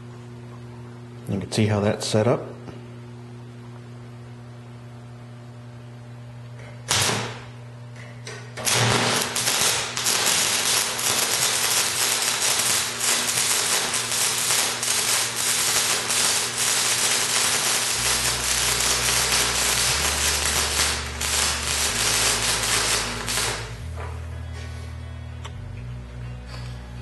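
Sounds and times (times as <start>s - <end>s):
low steady hum: 0.0s - 27.0s
welding arc crackling: 6.9s - 7.5s, 8.6s - 23.9s.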